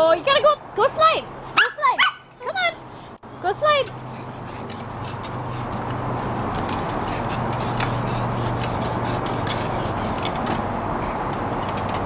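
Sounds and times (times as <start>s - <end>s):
claws scrabbling on wood: 3.8s - 12.0s.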